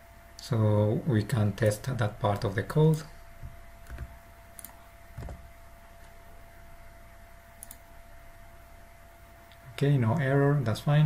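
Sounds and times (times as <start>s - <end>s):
faint steady hum: 0.0s - 11.0s
keyboard and mouse clicks: 3.8s - 5.4s, 7.6s - 7.8s.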